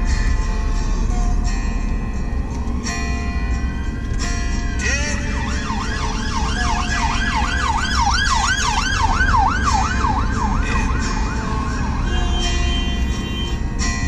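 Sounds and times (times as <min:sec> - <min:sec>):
idling traffic hum: 0:00.0 - 0:14.0
siren yelping: 0:05.4 - 0:12.6.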